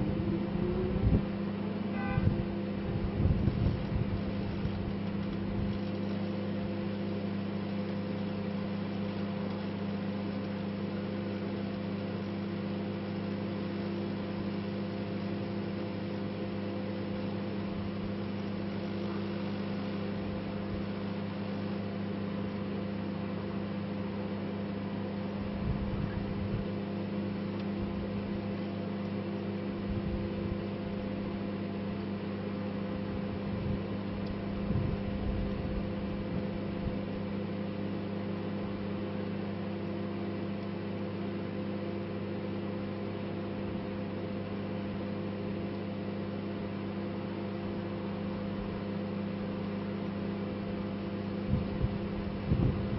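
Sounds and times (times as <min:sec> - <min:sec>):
microwave oven humming: 0:00.0 - 0:52.9.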